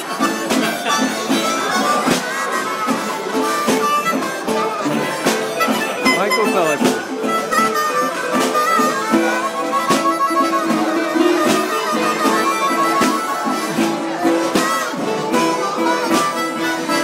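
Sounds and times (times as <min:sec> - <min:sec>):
harmonica wavering notes: 0:00.0 - 0:17.0
steady beat of sharp knocks: 0:00.4 - 0:11.8.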